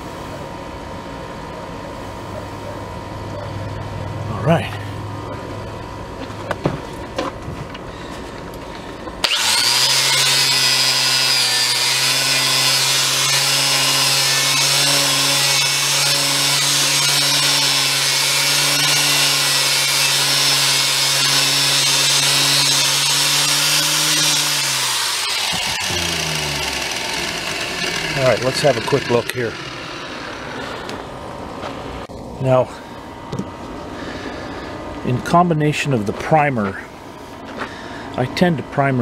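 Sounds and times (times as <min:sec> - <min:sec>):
angle grinder whining: 0:07.7 - 0:32.1.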